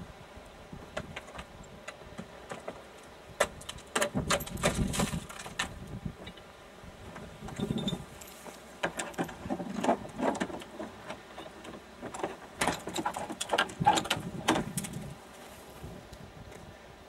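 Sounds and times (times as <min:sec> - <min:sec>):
chain rattling against metal door: 0:07.5 - 0:08.4.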